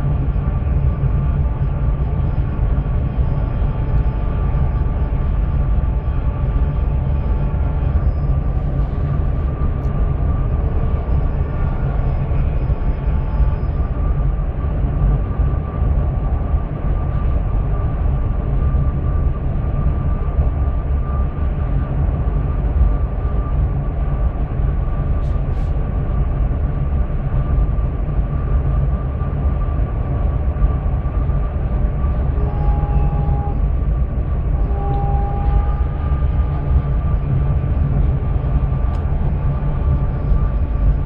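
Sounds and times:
faint constant whine: 0:00.0 - 0:41.0
train wheels rumbling on rails: 0:24.0 - 0:41.0.

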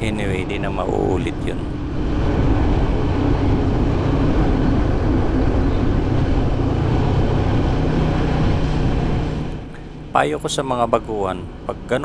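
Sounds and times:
wind and road noise: 0:00.0 - 0:12.0
motorcycle engine running: 0:01.5 - 0:10.7.

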